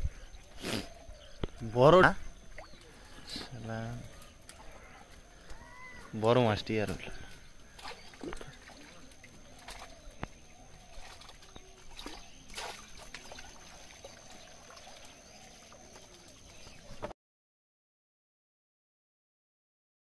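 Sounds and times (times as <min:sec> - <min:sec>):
water trickling and sloshing: 0:00.0 - 0:17.1
splashes and knocks in water: 0:06.8 - 0:17.1.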